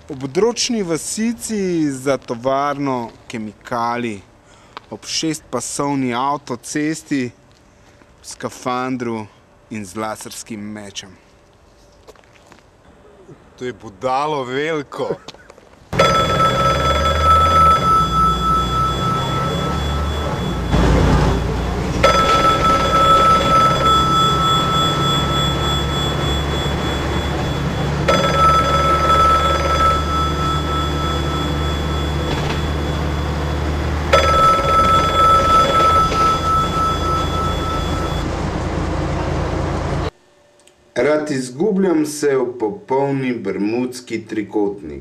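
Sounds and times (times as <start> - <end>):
ringing tone: 16.0 - 38.3
bus engine rumble: 16.0 - 40.1.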